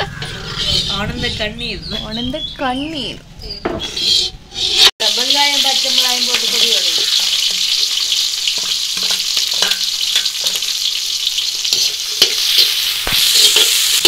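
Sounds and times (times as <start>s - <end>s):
metal spoon scraping wok: 0.0s - 1.6s, 3.7s - 4.9s, 6.3s - 10.9s, 11.6s - 14.0s
food sizzling in hot oil: 4.6s - 14.0s.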